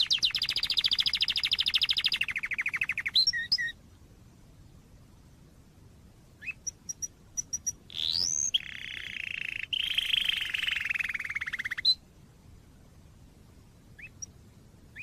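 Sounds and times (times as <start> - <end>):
canary singing: 0.0 - 3.8, 6.4 - 12.0, 14.0 - 14.3.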